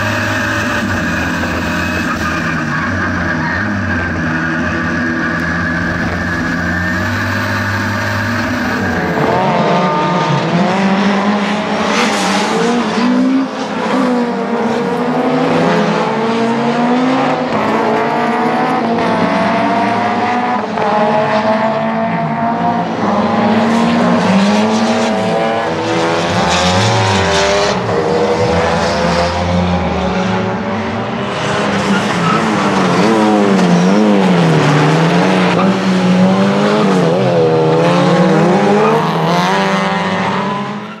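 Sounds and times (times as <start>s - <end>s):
race car engine revving: 0.0s - 41.0s.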